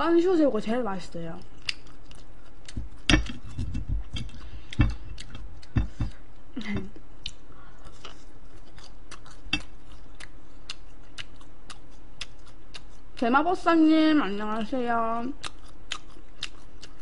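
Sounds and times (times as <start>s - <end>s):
person chewing crispy food: 1.4s - 13.2s, 15.3s - 17.0s
soft thumps: 2.8s - 5.0s.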